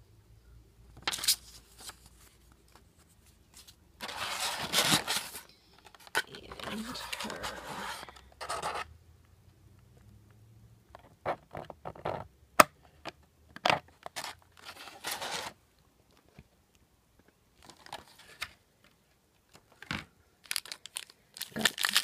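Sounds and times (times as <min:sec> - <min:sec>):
plastic crinkling: 0:20.4 - 0:22.0.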